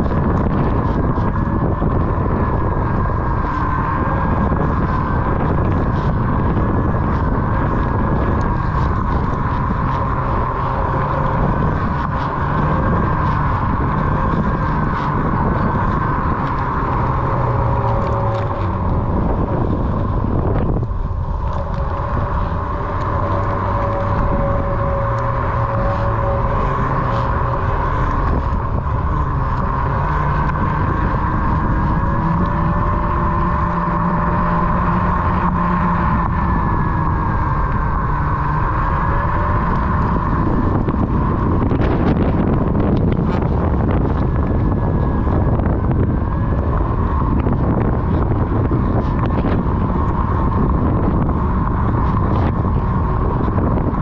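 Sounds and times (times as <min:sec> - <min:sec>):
electric motor whining: 0:00.0 - 0:54.0
wind rumble on microphone: 0:00.0 - 0:54.0.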